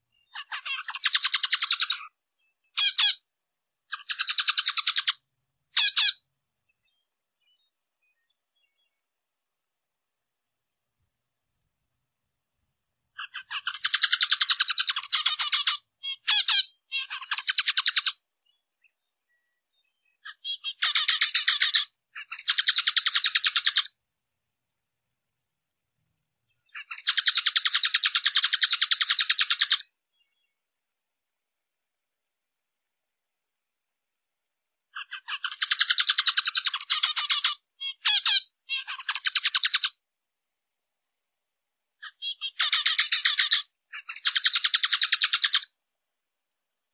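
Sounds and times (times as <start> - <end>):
finch song chattering: 0.0 - 3.2, 3.9 - 9.1, 13.1 - 24.0, 26.3 - 30.6, 34.9 - 40.0, 42.0 - 45.8.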